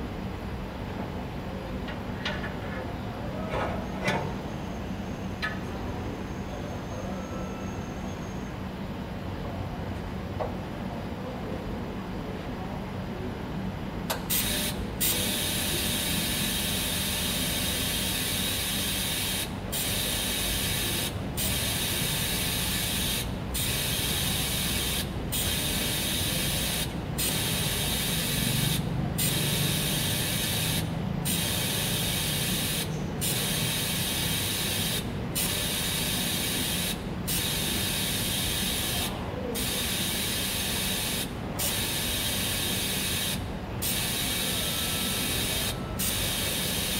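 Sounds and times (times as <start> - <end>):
welding arc hiss: 14.3 - 46.9.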